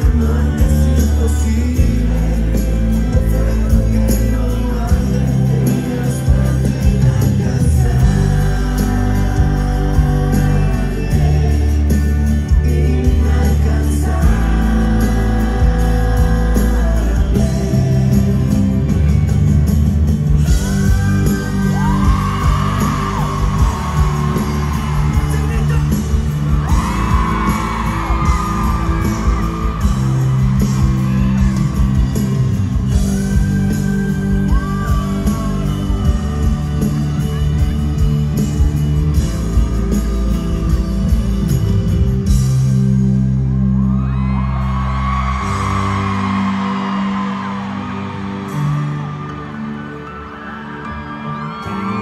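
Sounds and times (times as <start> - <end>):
man singing vocal runs: 0.0 - 19.1
live pop-rock ballad: 0.0 - 52.0
fans yelling: 20.6 - 38.8, 43.7 - 52.0.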